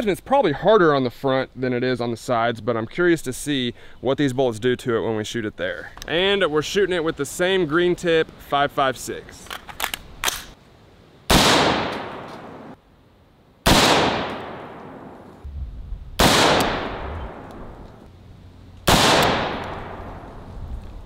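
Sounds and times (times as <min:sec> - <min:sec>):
rifle shots echoing: 0:11.3 - 0:12.8, 0:13.6 - 0:15.3, 0:16.2 - 0:17.8, 0:18.9 - 0:20.3.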